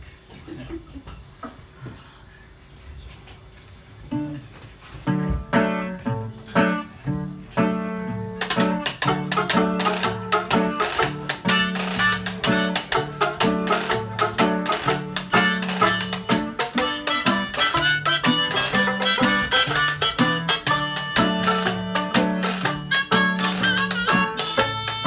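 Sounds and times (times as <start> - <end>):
jug-band music: 5.0 - 25.0.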